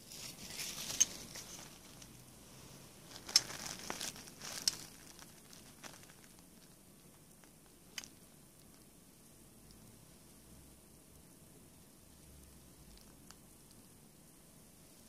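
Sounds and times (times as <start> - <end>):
plastic sheet crinkling: 0.0 - 2.2, 3.0 - 8.8.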